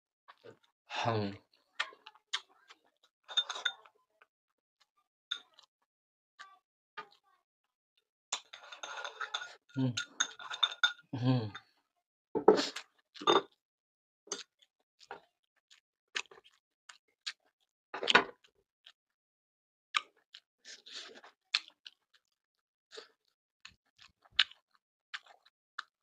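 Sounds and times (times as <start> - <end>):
person chewing and crunching: 14.3 - 19.0, 19.9 - 26.0.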